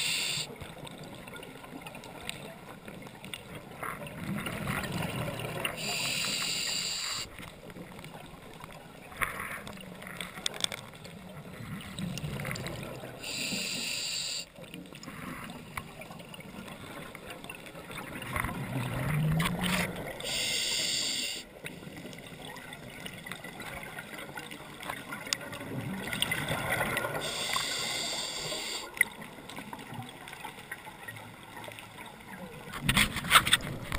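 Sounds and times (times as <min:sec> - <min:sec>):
underwater regulator bubbles hissing: 0:00.0 - 0:00.5, 0:05.8 - 0:07.3, 0:13.2 - 0:14.5, 0:27.2 - 0:28.9
low muffled underwater background: 0:00.0 - 0:33.9.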